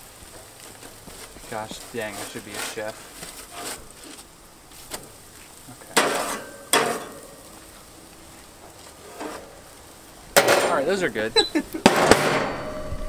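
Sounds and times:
metal spatula scraping on foil: 0.0s - 7.7s, 8.4s - 9.8s
fish sizzling on grill: 0.0s - 13.0s.

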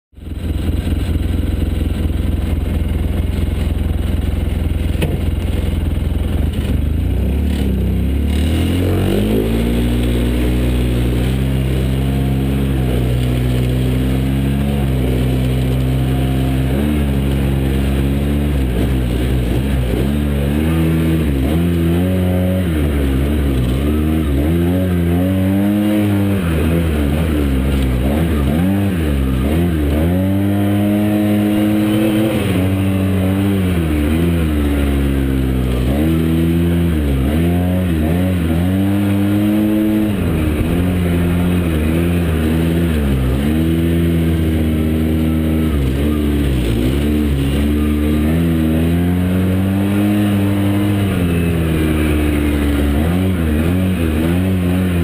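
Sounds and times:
utv engine revving: 0.2s - 55.0s.

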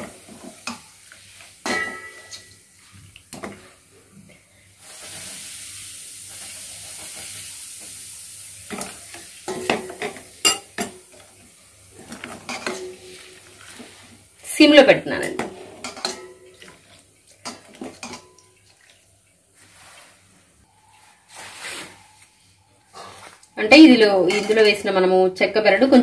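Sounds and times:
oil sizzling: 4.8s - 15.0s
spoon scraping metal bowl: 10.5s - 10.7s.

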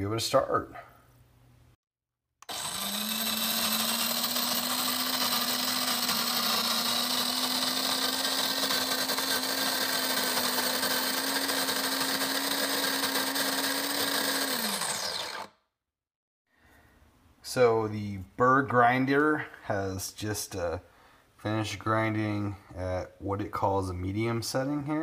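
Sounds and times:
coffee grinder grinding beans: 2.4s - 15.5s.

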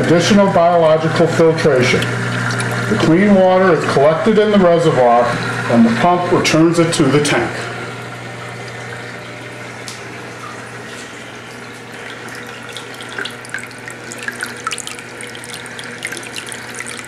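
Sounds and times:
low pump hum: 0.0s - 17.0s
water pouring into tank: 1.4s - 4.0s, 10.2s - 17.0s
water splashes and drips: 2.0s - 2.9s, 8.8s - 17.0s.

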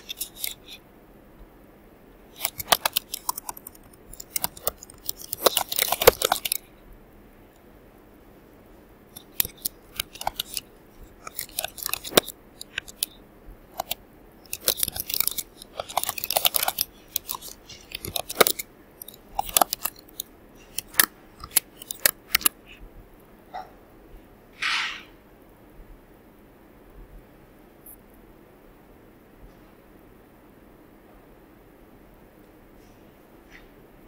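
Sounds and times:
typing on computer keyboard: 2.3s - 6.7s, 9.2s - 22.6s.

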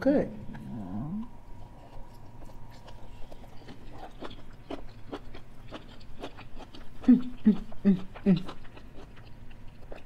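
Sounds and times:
close chewing with wet mouth clicks: 1.6s - 10.0s.

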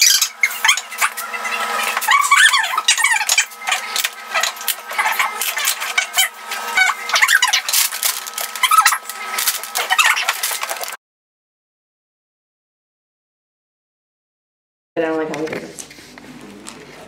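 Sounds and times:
plastic parts clicking and squeaking: 2.0s - 11.0s
paper sheet rustling: 7.1s - 11.0s
plastic wrapping crinkling: 7.2s - 11.0s.

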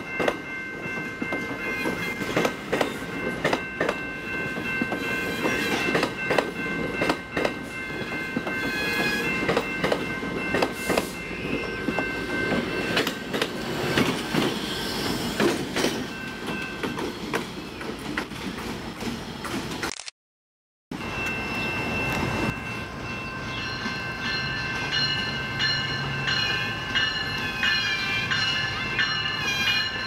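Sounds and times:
diesel locomotive passing: 0.0s - 19.8s, 21.0s - 30.0s
train wheels clacking over rails: 0.0s - 19.8s.

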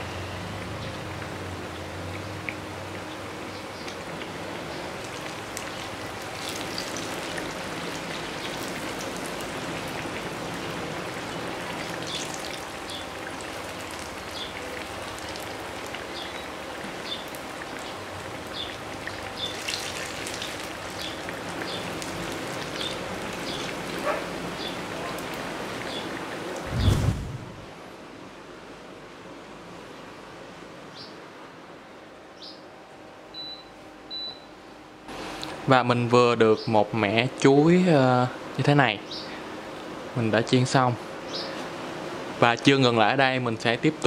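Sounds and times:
deep-frying sizzle: 0.0s - 27.7s
light oil crackles: 0.6s - 26.7s.

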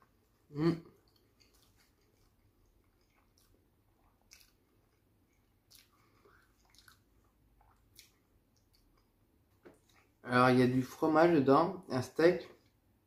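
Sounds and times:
person chewing food: 0.0s - 10.2s.

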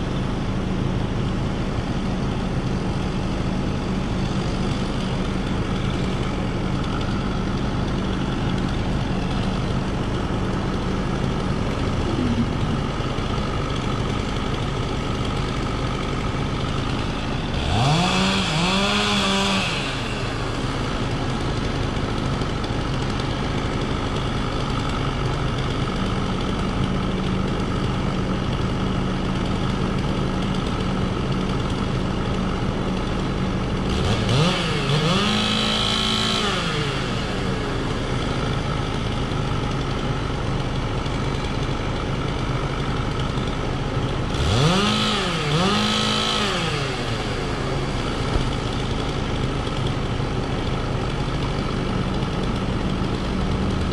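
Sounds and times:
engine running and revving: 0.0s - 53.9s.

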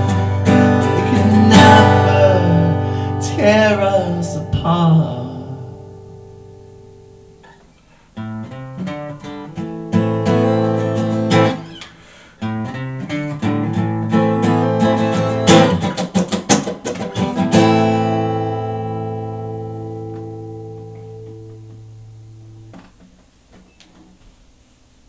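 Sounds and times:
acoustic guitar strumming: 0.0s - 24.2s.

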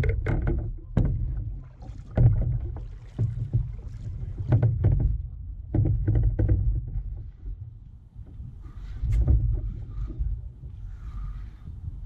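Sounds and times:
paddle strokes splashing water: 0.0s - 6.0s.

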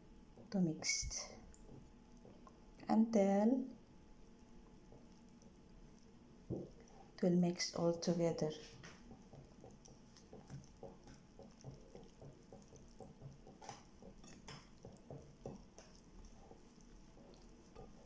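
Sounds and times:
whisk stirring batter: 4.2s - 18.0s.

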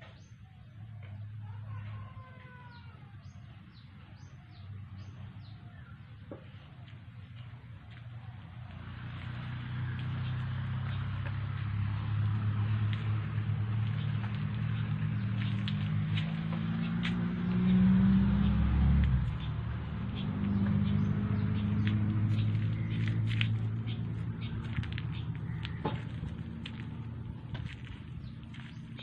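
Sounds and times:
engine hum: 0.0s - 29.0s.

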